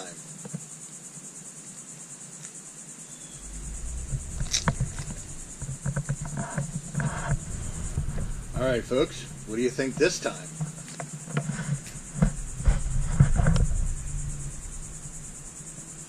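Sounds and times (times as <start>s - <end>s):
insects chirring: 3.1s - 16.0s
low rumble: 3.4s - 16.0s.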